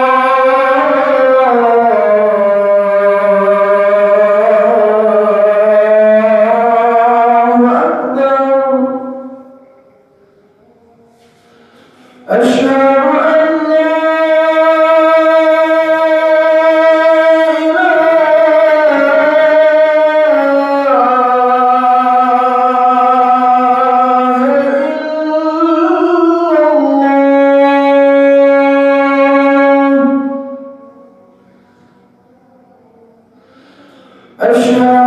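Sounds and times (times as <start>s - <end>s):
man singing call to prayer: 0.0s - 10.1s, 10.7s - 35.0s.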